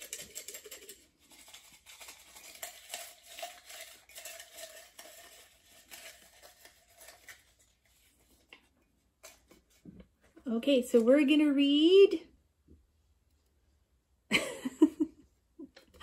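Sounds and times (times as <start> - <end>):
paper slips rustling in a mug: 0.0 - 8.5.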